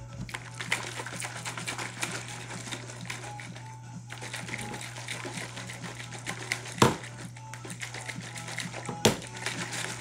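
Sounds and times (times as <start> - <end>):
shaker cup sloshing and clattering: 0.0 - 10.0
shaker cup knock: 6.8 - 7.1, 8.9 - 9.4.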